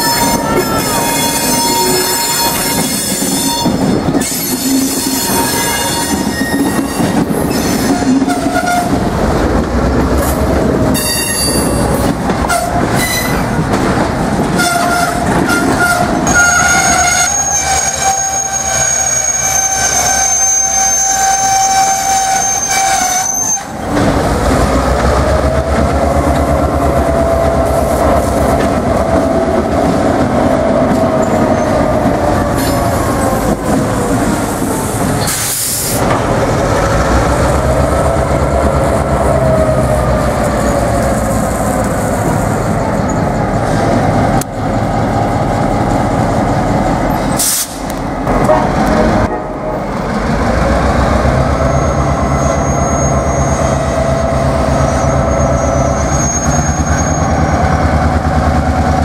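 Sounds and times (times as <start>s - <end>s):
locomotive engine rumbling: 0.0s - 59.0s
wheels squealing: 51.6s - 57.8s.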